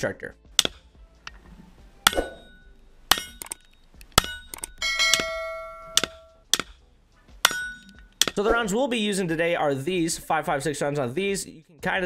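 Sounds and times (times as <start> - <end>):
rifle shots hitting steel targets: 2.0 - 3.6, 4.2 - 6.8, 7.4 - 8.5
steel plate ringing: 2.1 - 3.4, 4.2 - 6.4, 7.4 - 8.4.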